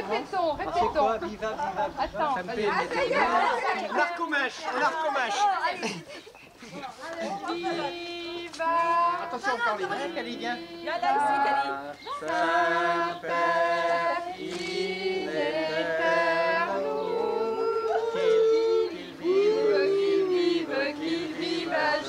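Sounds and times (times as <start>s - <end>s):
group singing unaccompanied: 0.0s - 5.6s, 7.0s - 22.0s.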